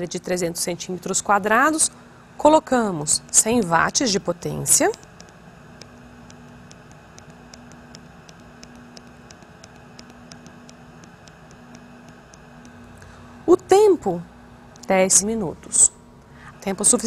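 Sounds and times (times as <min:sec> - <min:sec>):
faint hum and hiss: 0:00.0 - 0:17.0
light evenly spaced ticks: 0:04.8 - 0:12.8.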